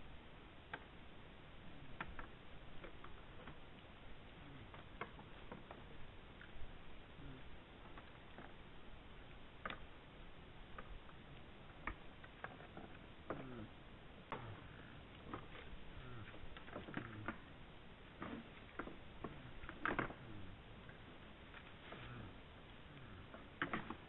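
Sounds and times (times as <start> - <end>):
antlers clicking and knocking: 4.6 - 6.6, 10.7 - 17.6, 18.2 - 22.4, 23.2 - 24.0.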